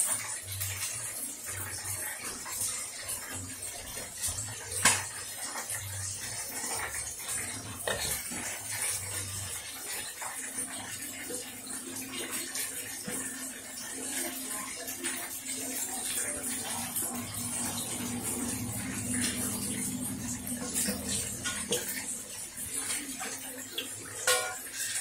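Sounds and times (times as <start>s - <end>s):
fish sizzling in hot oil: 0.0s - 25.0s
metal bowl knocking: 24.2s - 24.7s.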